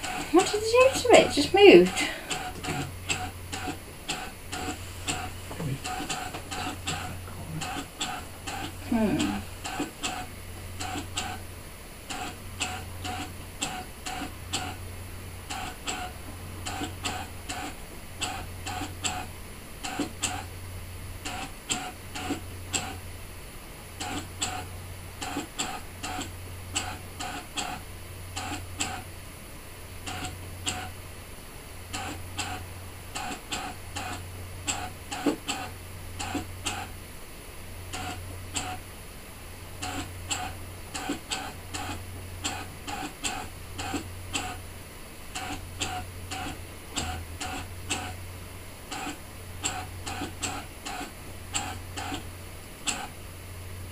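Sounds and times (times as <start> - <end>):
cutting machine motors humming: 0.0 - 23.1, 39.6 - 53.2.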